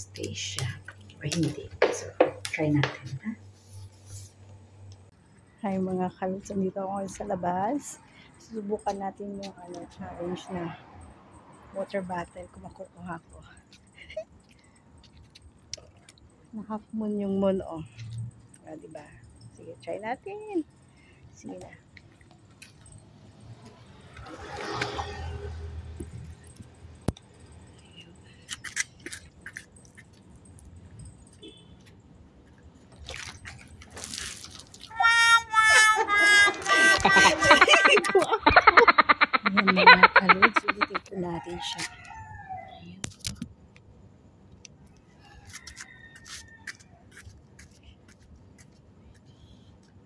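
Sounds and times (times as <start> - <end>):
low outdoor background: 0.0 - 50.0
footsteps clicking and scuffing: 45.5 - 50.0.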